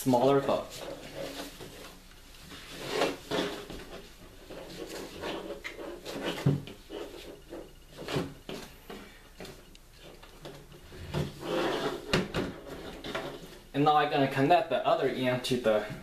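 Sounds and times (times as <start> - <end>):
strap rubbing and scraping: 0.4 - 13.7.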